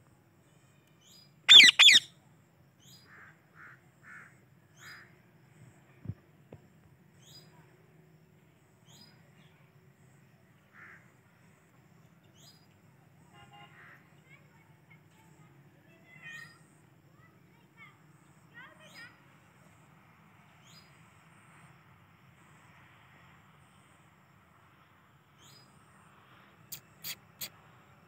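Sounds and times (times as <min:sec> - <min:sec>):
faint high bird chirps: 0:00.4 - 0:02.2, 0:15.2 - 0:19.2, 0:26.6 - 0:27.7
parakeet squawking: 0:01.5 - 0:02.1.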